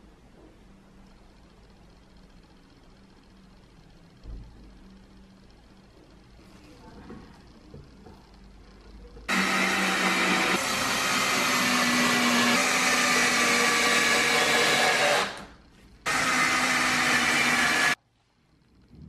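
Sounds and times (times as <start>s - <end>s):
electric drill driving screws: 9.3s - 15.5s, 16.1s - 18.0s.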